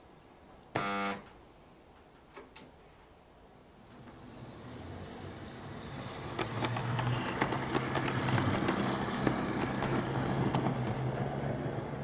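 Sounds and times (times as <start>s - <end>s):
train running past: 4.0s - 12.0s
wheels clicking on rails: 4.0s - 12.0s.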